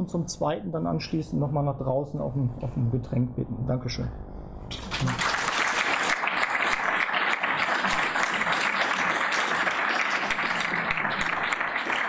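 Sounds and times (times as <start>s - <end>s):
audience applauding: 4.7s - 12.0s.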